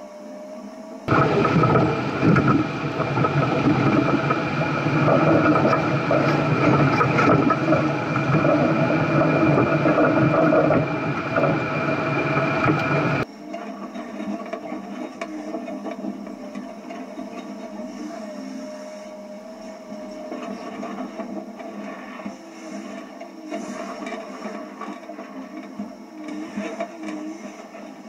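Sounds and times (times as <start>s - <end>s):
steady high whine: 0.0s - 28.0s
off-road engine under load: 1.1s - 13.2s.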